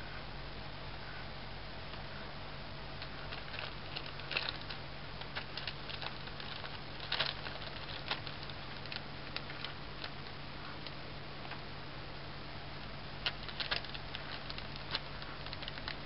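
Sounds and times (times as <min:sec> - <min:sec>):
steady low hum: 0:00.0 - 0:16.0
kitten scratching: 0:03.0 - 0:11.6, 0:13.2 - 0:16.0
plastic bag crinkling: 0:03.0 - 0:11.7, 0:13.2 - 0:16.0.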